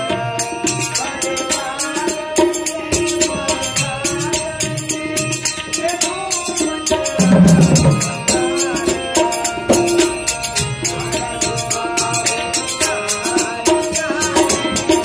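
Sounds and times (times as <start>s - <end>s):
person singing: 0.0s - 10.1s
jingling hand percussion: 0.0s - 15.0s
drum beat: 6.9s - 11.7s.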